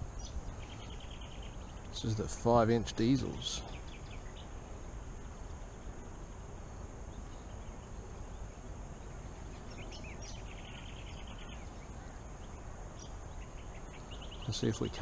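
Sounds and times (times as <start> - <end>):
bird chirps: 0.0 - 4.6, 7.0 - 15.0
low background noise: 0.0 - 15.0.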